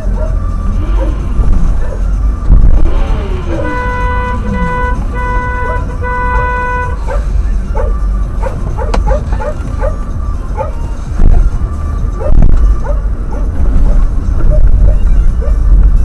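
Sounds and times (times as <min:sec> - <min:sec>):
dog barking: 0:00.0 - 0:02.2, 0:05.5 - 0:06.0, 0:07.0 - 0:10.0, 0:10.6 - 0:10.8, 0:12.2 - 0:15.7
steady low rumble: 0:00.0 - 0:16.0
car horn honking: 0:02.3 - 0:08.2.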